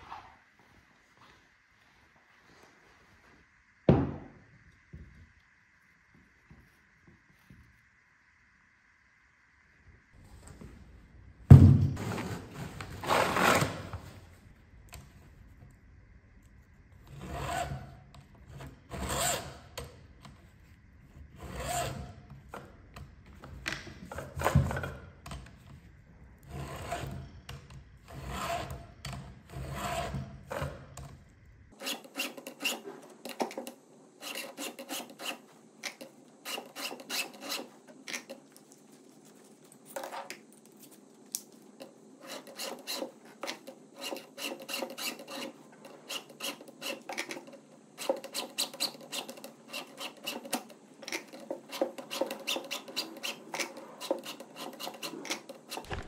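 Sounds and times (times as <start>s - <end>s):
file rasping on chainsaw teeth: 31.8s - 33.0s, 34.2s - 38.3s, 42.2s - 56.0s.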